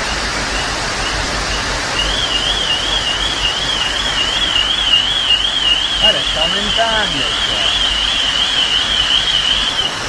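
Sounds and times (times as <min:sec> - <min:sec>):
floodwater rushing: 0:00.0 - 0:10.0
alarm warbling: 0:01.9 - 0:10.0.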